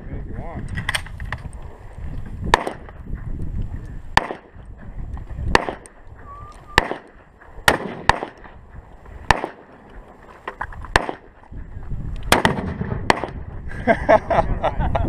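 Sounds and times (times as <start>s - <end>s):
gunshots: 2.5s - 3.0s, 4.1s - 4.6s, 5.5s - 6.0s, 6.7s - 8.6s, 9.2s - 9.8s, 10.9s - 11.4s, 12.3s - 13.5s.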